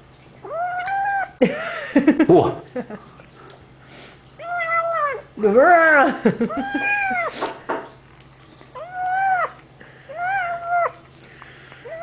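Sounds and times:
kitten meowing: 0.4 - 1.3, 6.6 - 7.3, 8.8 - 9.6.

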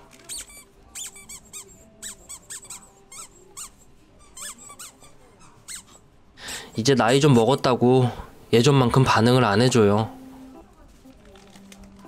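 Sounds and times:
squeaky dog toy squeaking: 0.1 - 6.1.

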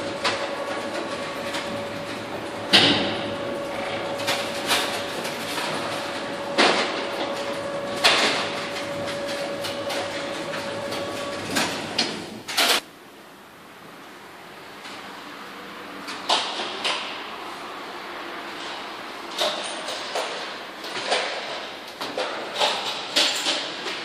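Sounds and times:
shelving unit drive humming: 0.0 - 12.8.

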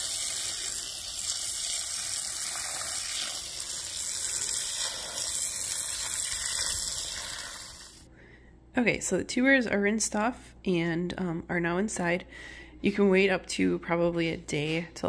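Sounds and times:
hose spraying water on soil: 0.0 - 8.1.

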